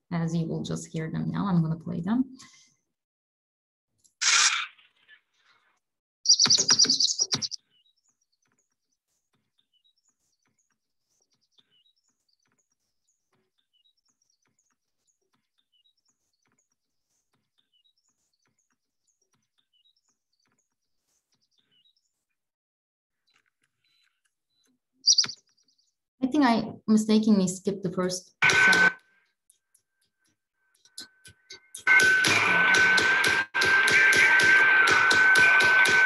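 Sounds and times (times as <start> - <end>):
faint bird chirps: 6.3 - 7.6, 25.0 - 25.4.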